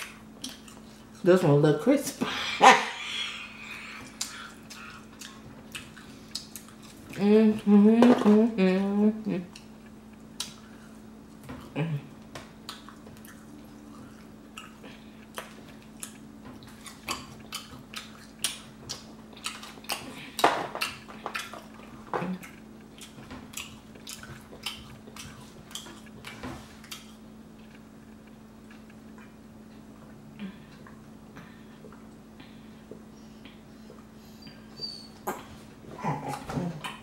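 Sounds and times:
chewing: 0:00.0 - 0:01.3, 0:03.2 - 0:07.7, 0:12.6 - 0:34.1
steady low hum: 0:00.0 - 0:37.0.

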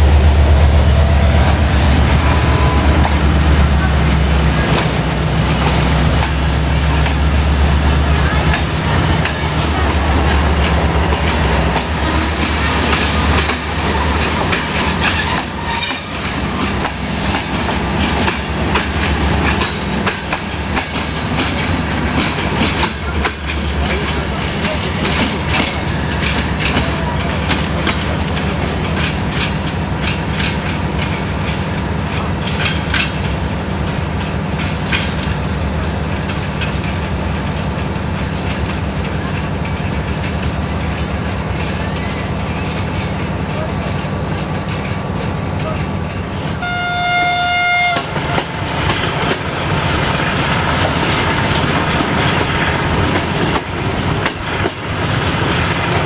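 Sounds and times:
steady low train hum: 0:00.0 - 0:56.0
train wheels clacking over rail joints: 0:00.0 - 0:56.0.

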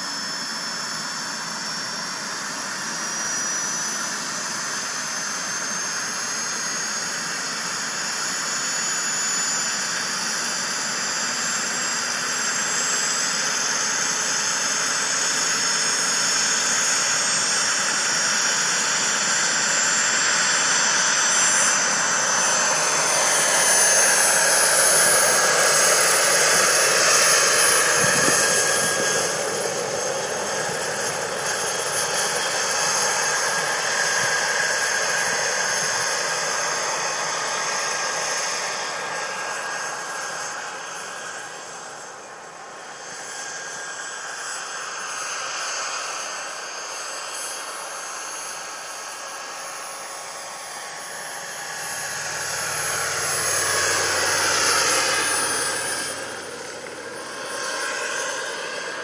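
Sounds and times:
model helicopter spooling up: 0:00.0 - 0:59.0.

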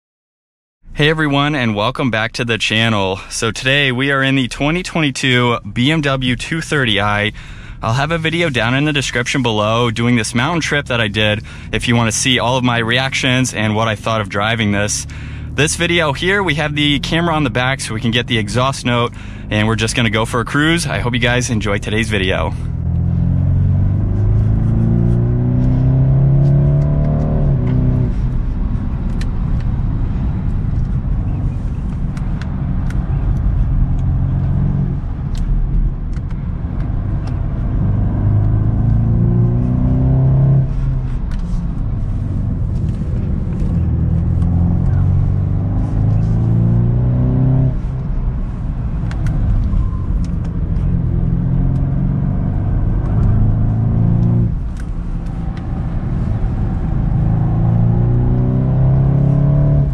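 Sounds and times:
car exhaust accelerating: 0:00.9 - 0:59.9.

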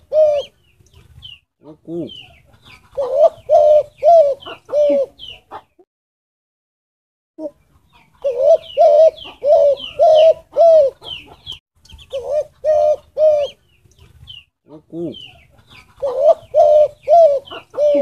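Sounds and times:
dove cooing: 0:00.0 - 0:00.6, 0:01.6 - 0:05.7, 0:07.4 - 0:13.6, 0:14.7 - 0:18.0.

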